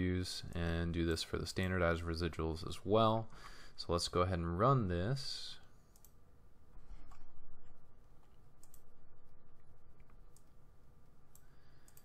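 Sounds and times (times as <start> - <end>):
low steady hum: 0.0 - 12.0
computer mouse clicks: 5.9 - 6.2, 8.2 - 8.9, 10.0 - 10.6, 11.3 - 12.0.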